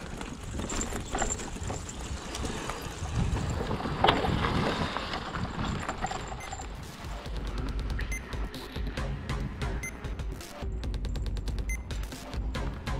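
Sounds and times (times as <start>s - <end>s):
tyres rolling on dirt and leaves: 0.0s - 7.4s
wind rumbling on microphone: 0.0s - 8.1s
bike rattling: 0.0s - 8.9s.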